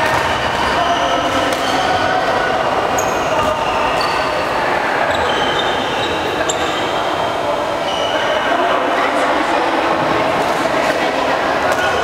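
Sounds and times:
loud hall noise: 0:00.0 - 0:12.0
racket hitting shuttlecock: 0:01.3 - 0:01.8
shoe squeaks: 0:03.0 - 0:07.2, 0:07.8 - 0:08.4.

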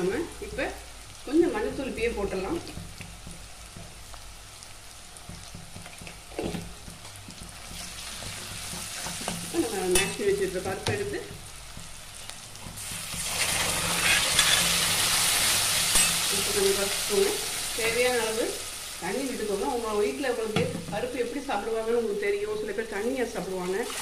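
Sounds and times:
food frying in oil: 0:00.0 - 0:24.0
loud sizzle of poured dal: 0:00.0 - 0:24.0
ladle scraping pan: 0:12.8 - 0:16.3.

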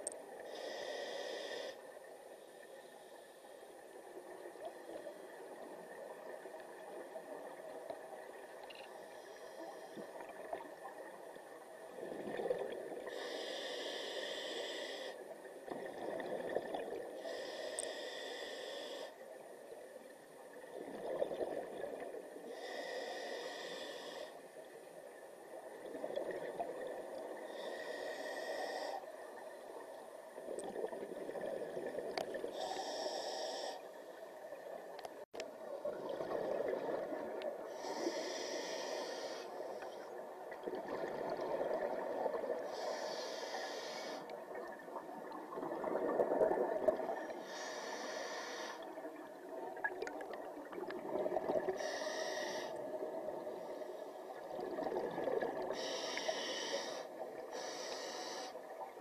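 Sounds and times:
regulator inhale hiss: 0:00.1 - 0:03.9, 0:08.9 - 0:10.7, 0:13.0 - 0:15.4, 0:17.1 - 0:19.4, 0:22.4 - 0:24.7, 0:27.3 - 0:29.9, 0:32.5 - 0:34.2, 0:37.6 - 0:40.3, 0:41.9 - 0:44.4, 0:47.0 - 0:49.0, 0:51.6 - 0:54.4, 0:55.7 - 0:58.8.

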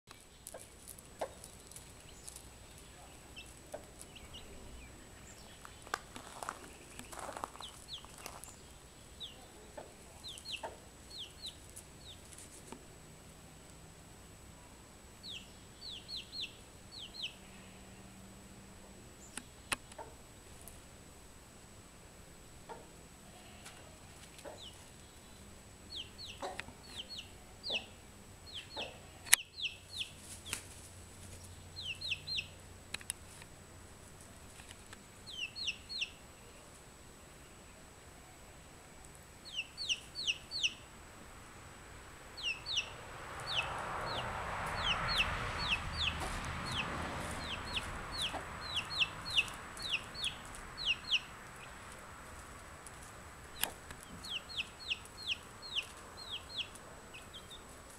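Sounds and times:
chick peeping: 0:00.4 - 0:12.4, 0:15.2 - 0:17.4, 0:23.7 - 0:25.0, 0:25.9 - 0:30.7, 0:31.8 - 0:32.6, 0:35.2 - 0:36.7, 0:39.4 - 0:40.8, 0:42.4 - 0:52.0, 0:52.9 - 0:57.9
soft rushing noise: 0:41.2 - 0:57.9.

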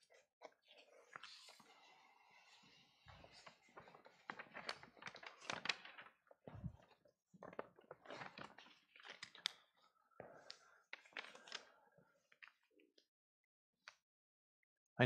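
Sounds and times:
paper rustling: 0:02.7 - 0:11.8.

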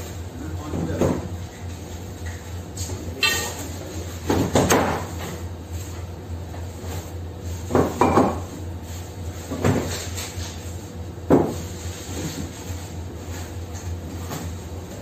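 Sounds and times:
steady low hum: 0:00.0 - 0:15.0
knocks of boxes being handled: 0:07.6 - 0:08.5, 0:11.2 - 0:11.7.

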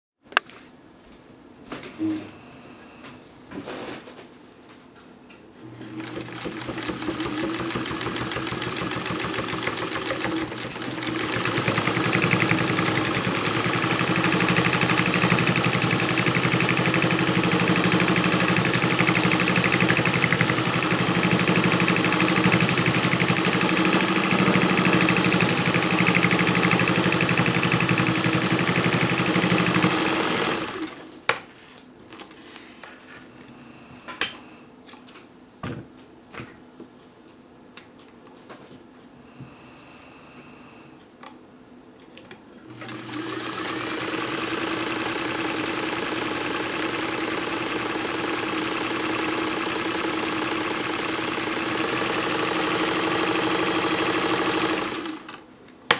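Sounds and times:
sewing machine running: 0:05.6 - 0:31.1, 0:42.6 - 0:55.4.

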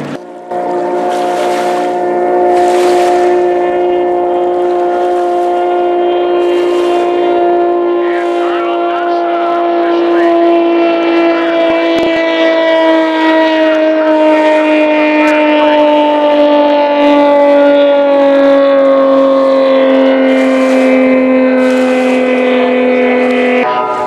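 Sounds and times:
boat engine running flat out: 0:00.0 - 0:24.0.

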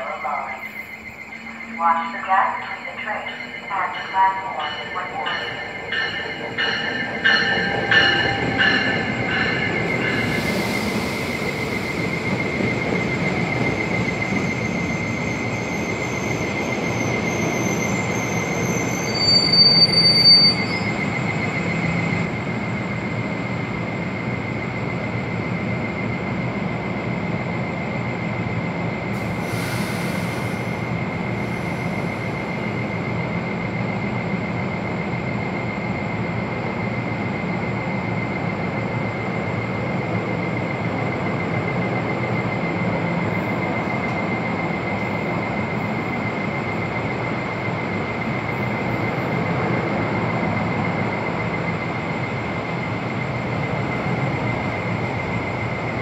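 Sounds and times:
train wheels rumbling on rail: 0:00.9 - 0:56.0
high wheel and brake squeal: 0:14.3 - 0:21.8
sharp loud brake squeal: 0:14.6 - 0:21.0
brief air hiss: 0:29.2 - 0:30.8.

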